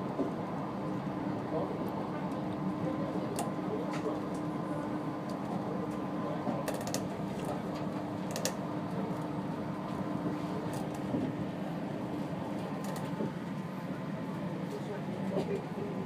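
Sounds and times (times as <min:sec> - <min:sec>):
monorail cabin hum: 0:00.0 - 0:16.0.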